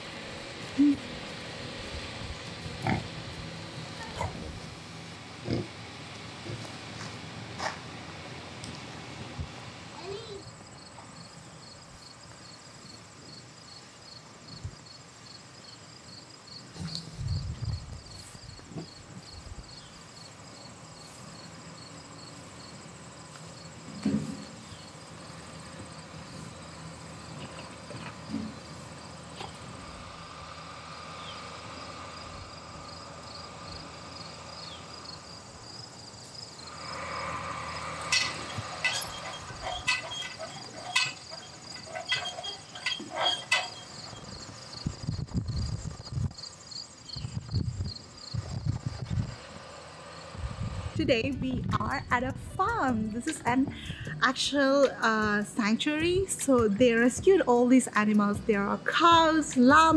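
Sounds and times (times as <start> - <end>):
crickets chirping: 10.1 - 51.0
sharp clicks and knocks: 38.1 - 44.1.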